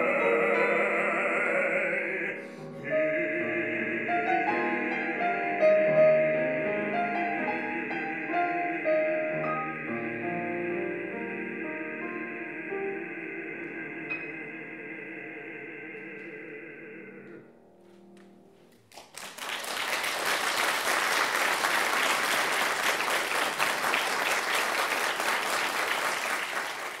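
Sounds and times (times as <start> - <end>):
man singing with vibrato: 0.0 - 17.6
piano: 0.0 - 27.0
audience applause: 18.8 - 27.0.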